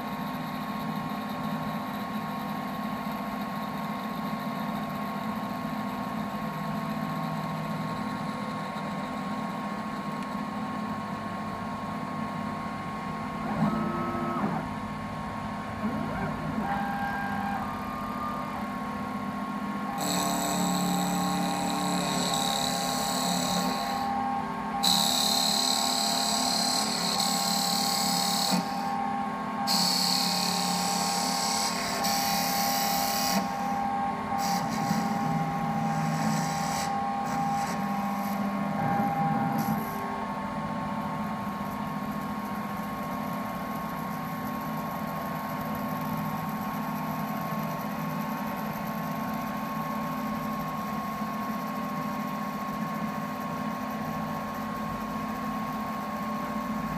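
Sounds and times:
machine hum: 0.0s - 56.9s
lathe cutter hissing on wood: 20.0s - 24.2s, 24.8s - 40.2s.

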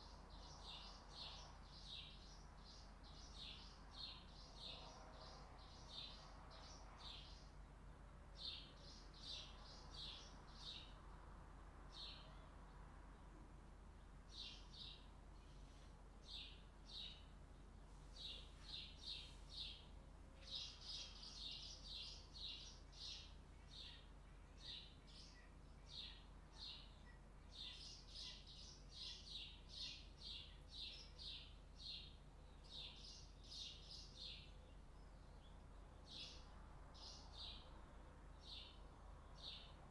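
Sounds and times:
faint bird chirping: 0.0s - 39.9s.

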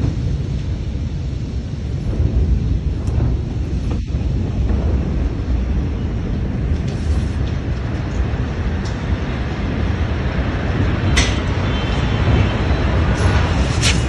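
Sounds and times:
low rumble: 0.0s - 14.0s
wind noise on microphone: 0.0s - 14.0s
sharp crack: 13.6s - 14.0s.

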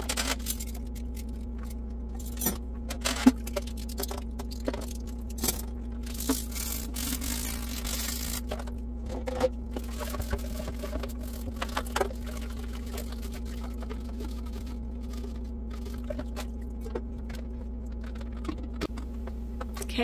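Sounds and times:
scrubbing: 5.9s - 19.0s.

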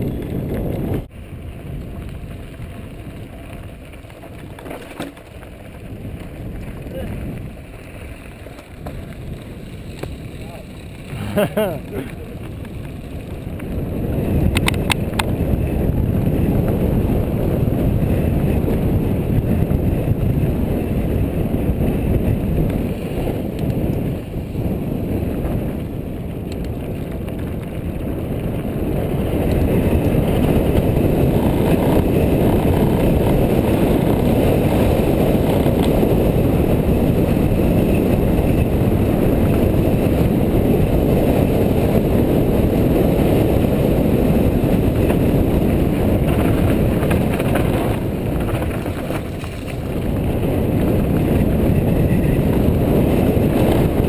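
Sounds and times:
wind on the microphone: 0.0s - 4.8s, 5.4s - 54.0s
tyres rolling over gravel: 0.0s - 15.5s, 22.6s - 54.0s.

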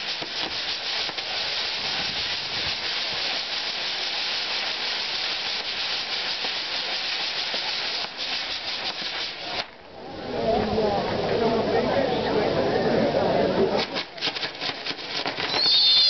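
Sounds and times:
light crackling of fireworks: 0.0s - 10.2s, 13.6s - 16.0s
fireworks fountains hissing: 0.0s - 12.6s, 13.4s - 16.0s.

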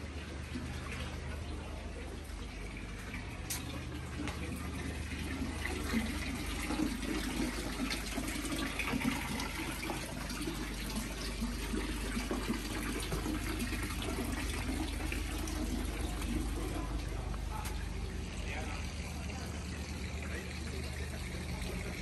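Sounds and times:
water trickling into stone basin: 0.0s - 22.0s.

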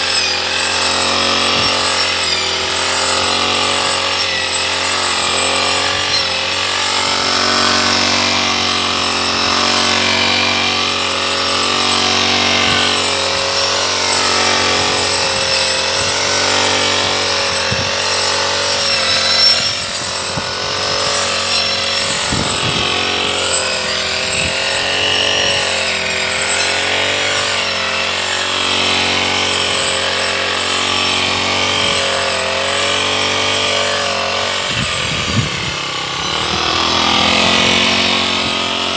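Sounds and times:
brush cutter engine cutting grass: 0.0s - 38.9s.

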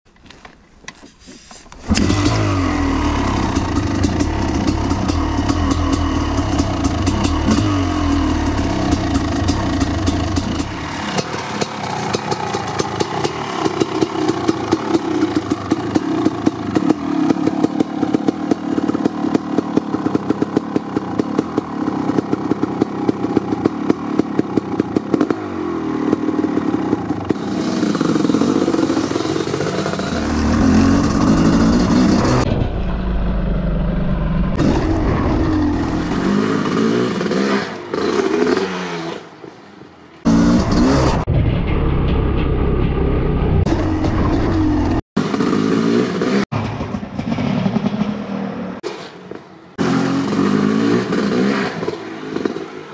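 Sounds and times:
dirt bike engine revving: 1.8s - 39.2s, 40.2s - 41.3s, 43.4s - 46.5s, 49.7s - 52.9s
dirt bike engine idling: 1.9s - 32.4s.

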